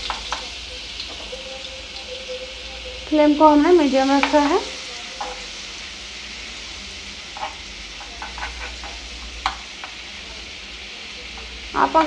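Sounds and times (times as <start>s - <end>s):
butter and oil sizzling: 0.0s - 12.0s
metal spoon ticking against pan: 7.4s - 9.9s.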